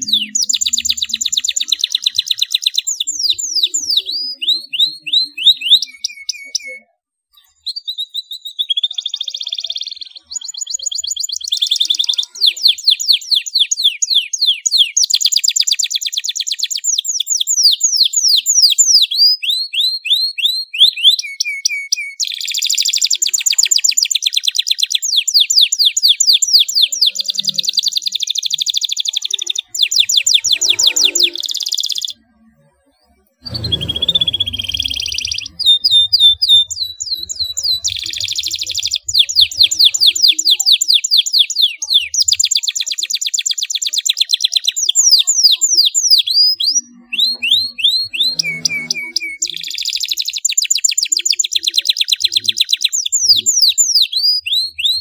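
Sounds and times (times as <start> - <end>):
canary singing: 0.0 - 55.0.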